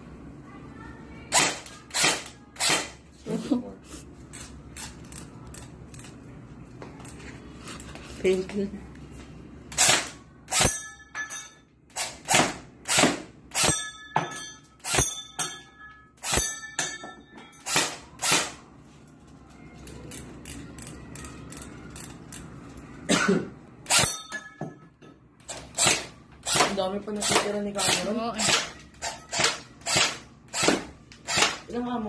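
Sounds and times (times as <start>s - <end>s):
short metallic ring: 23.9s - 24.7s.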